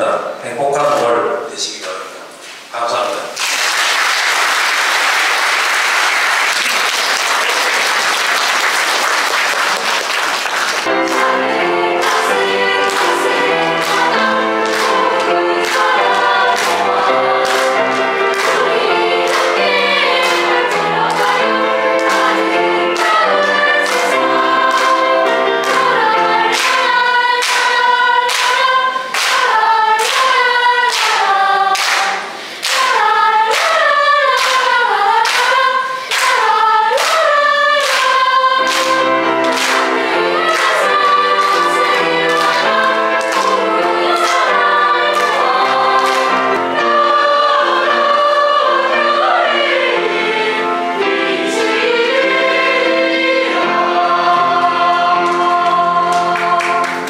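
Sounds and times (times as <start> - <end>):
audience applause: 3.4 - 25.9
hand claps keeping a beat: 3.4 - 46.7, 55.2 - 57.0
children's choir singing: 3.4 - 57.0
backing music: 10.8 - 57.0.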